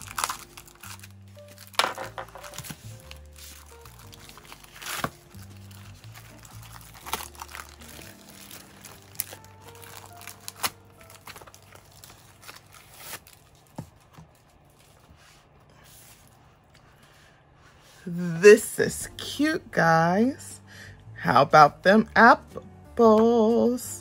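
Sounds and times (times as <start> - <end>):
plastic sleeve crinkling: 0.0 - 16.9
quiet background music: 0.0 - 24.0.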